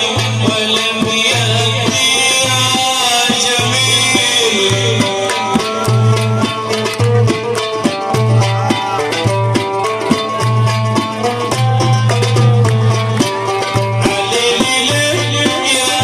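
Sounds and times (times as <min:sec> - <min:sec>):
man singing: 0:00.0 - 0:06.8, 0:13.9 - 0:16.0
folk band with drum beat: 0:00.0 - 0:16.0.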